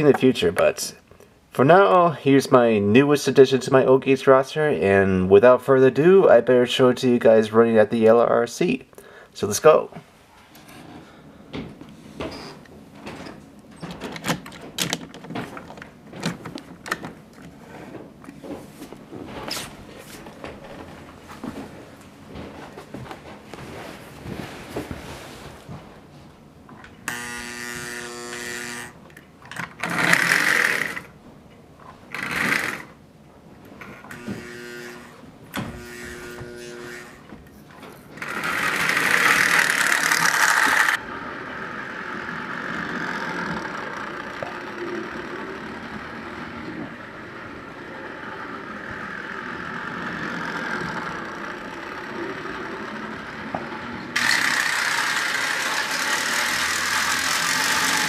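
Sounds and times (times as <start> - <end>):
toy train electric motor whirring: 27.0 - 31.1, 32.1 - 32.9, 33.9 - 35.2, 35.8 - 37.3, 38.2 - 58.0.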